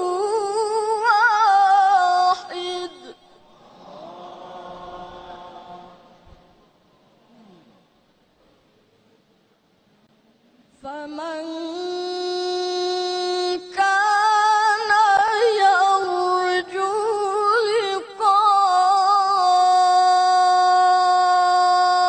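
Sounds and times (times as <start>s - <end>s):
boy reciting melodically: 0.0s - 6.0s, 10.7s - 22.0s.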